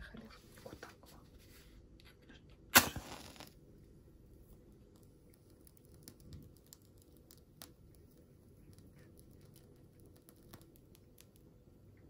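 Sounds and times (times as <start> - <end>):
match striking and flaring: 2.7 - 3.6
faint small clicks and taps: 4.8 - 12.0.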